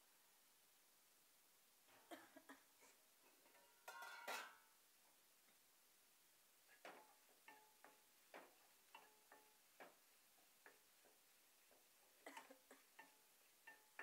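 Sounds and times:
spoon tapping metal pan: 3.4 - 4.7, 6.9 - 10.0, 10.6 - 11.9, 13.0 - 14.0
glass pan lid clinking: 3.6 - 4.6.

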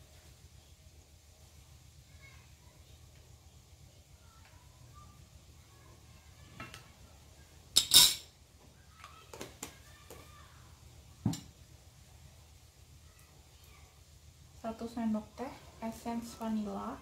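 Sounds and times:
utensils clattering against frying pan: 7.8 - 8.3.

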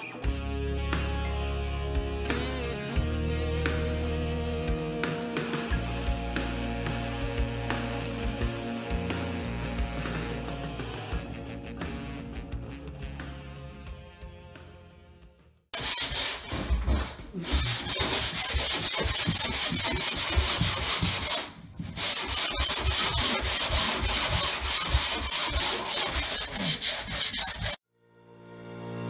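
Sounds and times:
sanding block rubbing on wall: 15.8 - 27.8.

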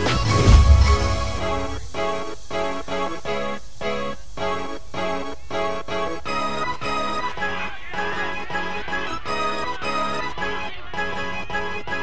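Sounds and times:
background music with steady beat: 0.0 - 12.0
deep bass swell: 0.2 - 2.4.

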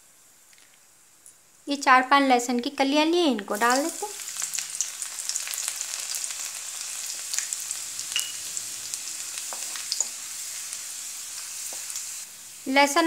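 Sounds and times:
garlic sizzling in hot oil: 1.8 - 13.0
spatula stirring: 9.1 - 12.2.

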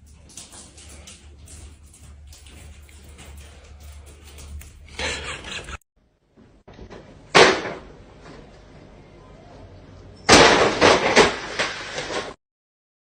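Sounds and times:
sharp crack: 10.3 - 12.4.

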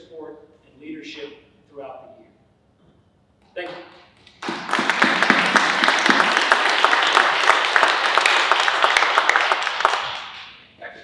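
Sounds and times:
audience applauding: 4.2 - 10.5.

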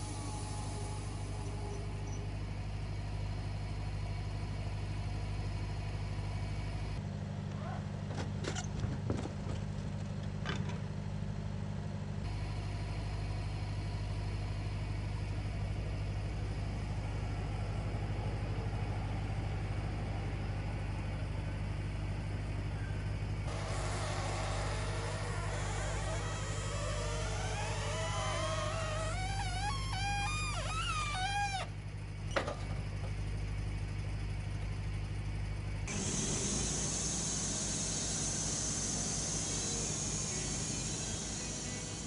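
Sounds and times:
sawmill engine running: 0.0 - 7.0, 23.3 - 42.0.

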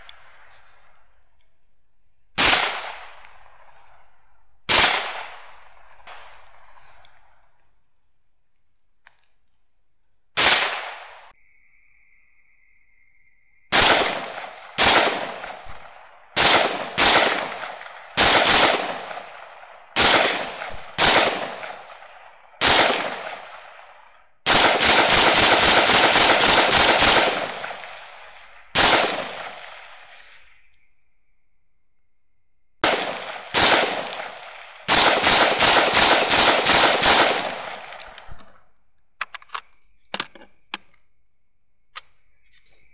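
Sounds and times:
rifle shots echoing: 2.4 - 7.1, 10.4 - 11.3, 13.7 - 30.6, 32.8 - 38.6.

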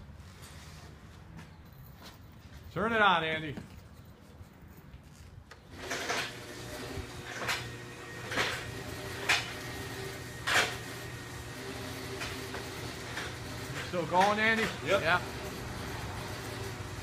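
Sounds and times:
insulation blowing machine running: 5.7 - 17.0.

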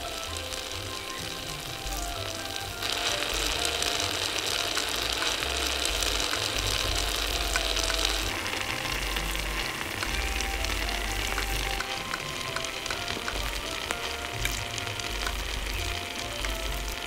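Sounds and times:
food sizzling in hot oil: 0.0 - 17.0
oil popping: 0.0 - 17.0
soft background music: 0.0 - 17.0.

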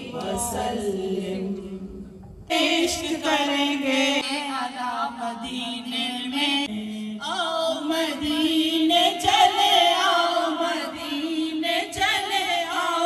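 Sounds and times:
woman chanting: 0.0 - 13.0.

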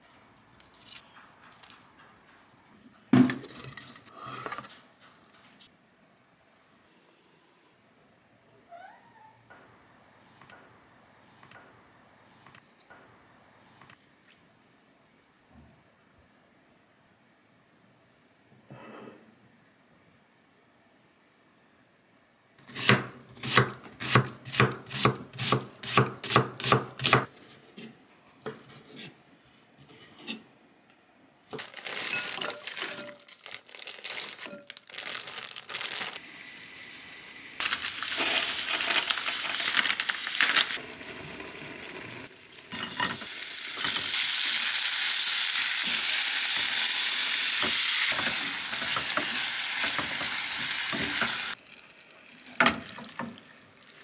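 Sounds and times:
food sizzling in a frying pan: 36.2 - 51.6.

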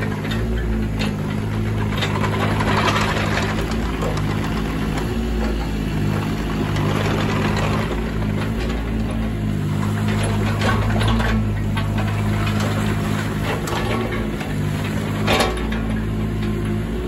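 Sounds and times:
small diesel engine running: 0.0 - 17.0.

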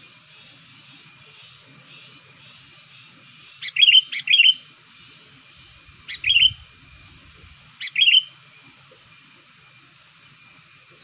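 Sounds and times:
bird chirping calls: 3.5 - 4.7, 5.7 - 8.4.

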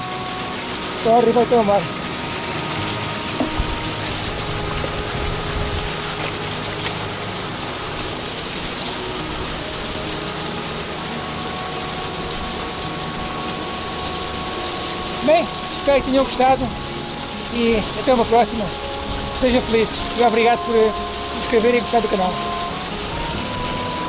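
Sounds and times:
waterfall splashing on rock: 0.0 - 24.0.

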